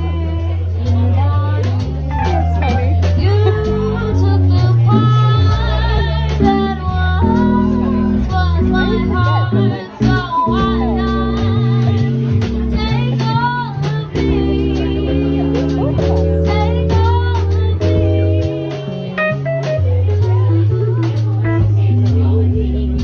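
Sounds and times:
woman singing with vibrato: 0.0 - 21.3
drum kit and cymbals: 0.0 - 23.0
keyboard: 0.0 - 23.0.

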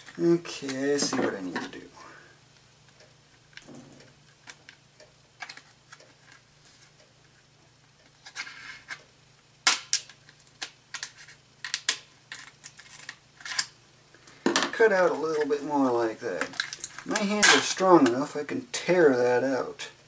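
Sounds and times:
plastic package crackling: 16.4 - 17.4.

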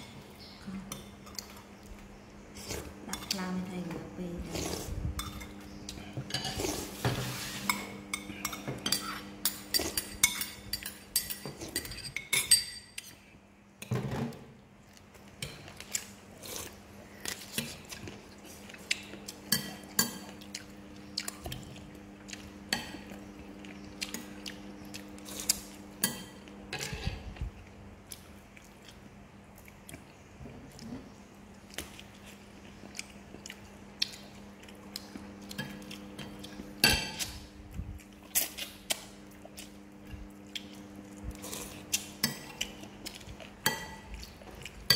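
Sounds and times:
low steady hum: 0.0 - 44.9
spoons clinking on china bowls: 7.7 - 13.1.

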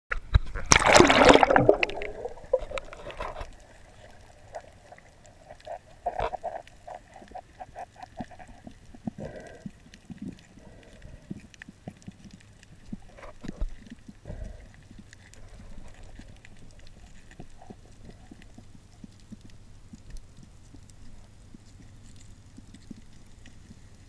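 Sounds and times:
muffled underwater knocks and clicks: 0.1 - 23.8.

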